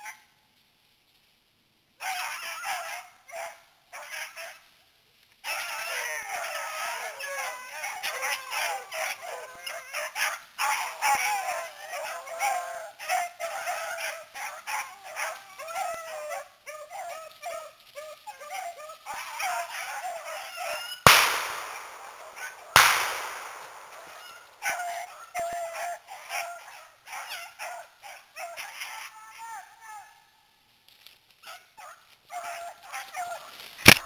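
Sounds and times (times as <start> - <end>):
dogs baying: 5.4 - 30.1, 31.5 - 33.5
shotgun blasts: 21.1 - 24.6.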